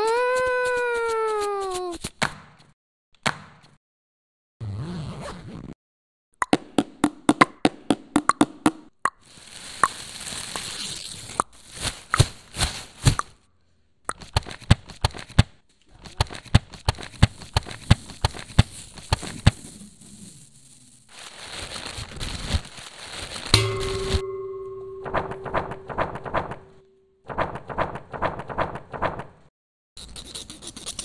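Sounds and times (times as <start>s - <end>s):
crackling rustle: 9.2s - 13.2s, 17.0s - 23.6s.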